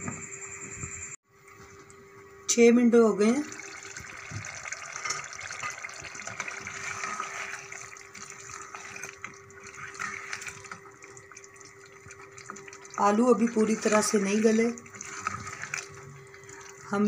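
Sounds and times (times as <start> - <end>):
gravy bubbling and sizzling: 3.0 - 17.0
spoon stirring in pot: 4.0 - 17.0.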